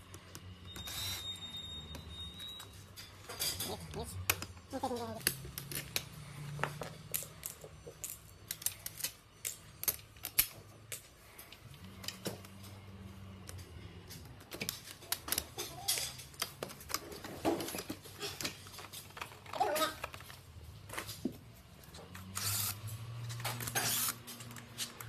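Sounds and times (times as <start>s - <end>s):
umbrella parts clicking: 6.8s - 12.6s.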